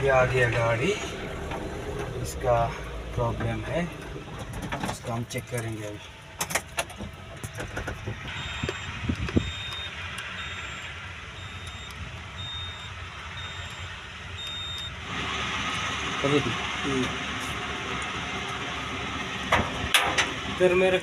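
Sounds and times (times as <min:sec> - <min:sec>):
knocks and clicks: 0:06.4 - 0:10.3
electronic warning beeps: 0:08.3 - 0:15.0.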